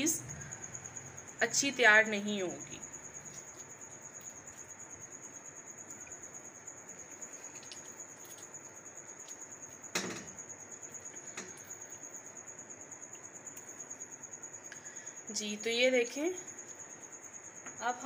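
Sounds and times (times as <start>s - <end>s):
cheese curd squelching and dripping: 3.0s - 13.8s.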